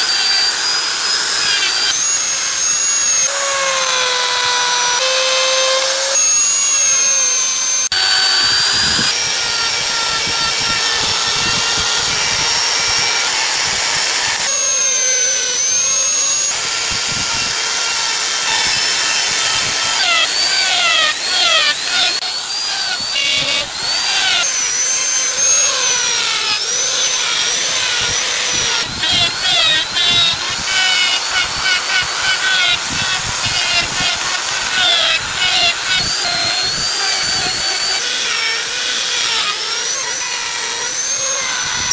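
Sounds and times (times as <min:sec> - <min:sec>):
die grinder whining: 0:00.0 - 0:41.9.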